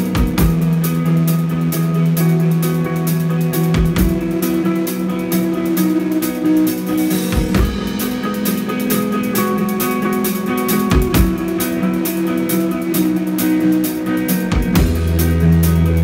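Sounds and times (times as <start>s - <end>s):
live rock band playing: 0.0s - 16.0s
heavy low drum hits: 14.5s - 16.0s.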